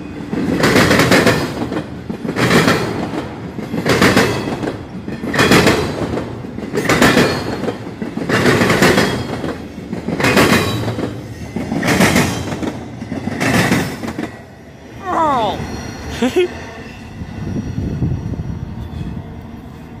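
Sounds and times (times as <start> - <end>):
train wheels clattering over crossing: 0.0 - 14.6
train rolling rumble: 0.0 - 20.0.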